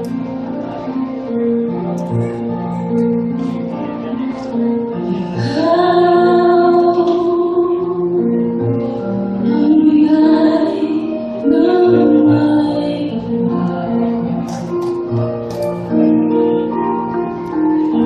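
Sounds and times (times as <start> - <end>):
instrumental accompaniment: 0.0 - 18.0
woman singing into microphone: 5.1 - 14.7.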